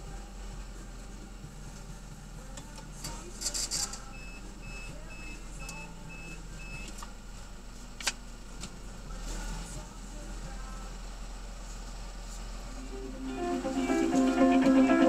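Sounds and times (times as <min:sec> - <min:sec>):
low engine hum: 0:00.0 - 0:15.0.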